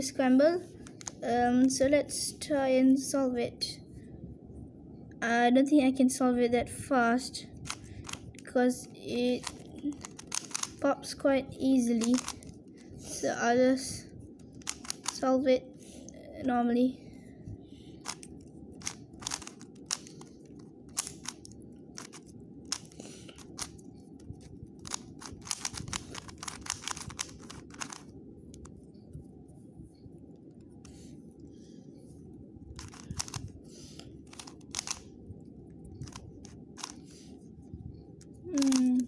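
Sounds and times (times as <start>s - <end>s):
faint background noise: 0.0s - 39.0s
puzzle cube layers clicking: 9.4s - 10.8s, 12.0s - 12.5s, 14.5s - 15.2s, 18.0s - 23.8s, 24.8s - 28.8s, 32.8s - 33.4s, 34.3s - 35.1s, 36.0s - 37.0s.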